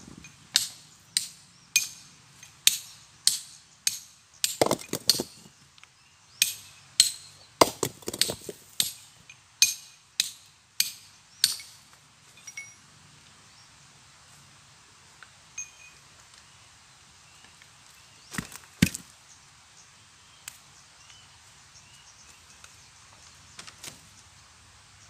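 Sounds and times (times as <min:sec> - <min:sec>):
rattle of knocks: 0:04.5 - 0:05.5.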